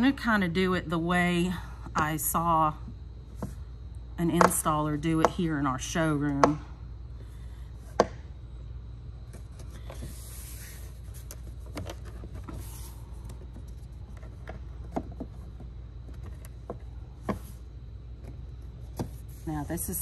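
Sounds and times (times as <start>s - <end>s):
steady low hum: 0.0s - 20.0s
soft scrapes: 9.3s - 14.4s.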